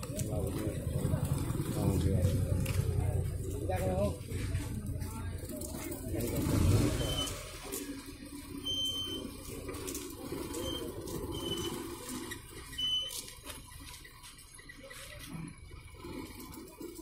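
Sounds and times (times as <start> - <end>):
low background murmur: 0.0 - 17.0
high-pitched electronic beeps: 6.6 - 7.7, 8.6 - 9.6, 10.3 - 15.2.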